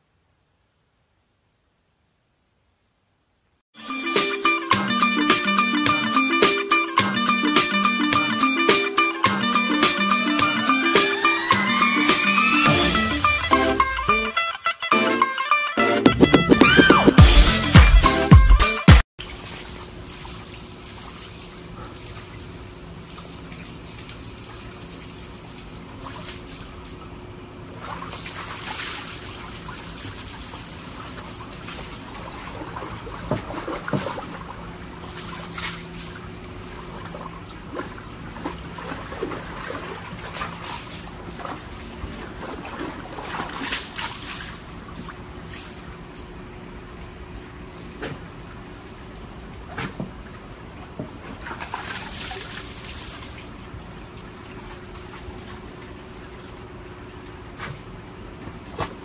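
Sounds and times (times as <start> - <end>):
dog splashing in water: 19.2 - 27.1, 27.7 - 46.3, 47.8 - 59.0
water trickling and sloshing: 19.2 - 59.0.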